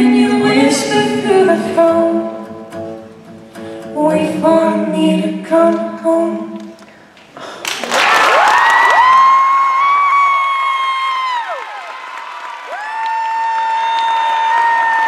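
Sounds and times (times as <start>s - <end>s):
girl and boy singing duet: 0.0s - 2.7s, 3.9s - 6.8s
audience applause and cheering: 7.6s - 15.0s
long whoop: 8.3s - 11.9s, 12.7s - 15.0s.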